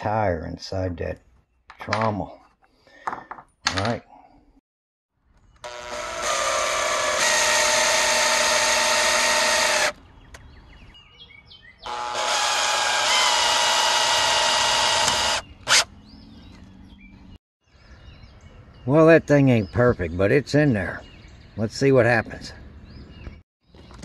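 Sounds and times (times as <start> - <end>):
power drill driving screws: 5.6 - 10.0, 11.9 - 15.9.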